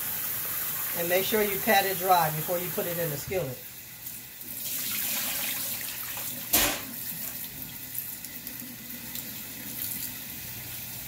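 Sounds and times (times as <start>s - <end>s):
water splashing into steel sink: 4.4s - 10.2s.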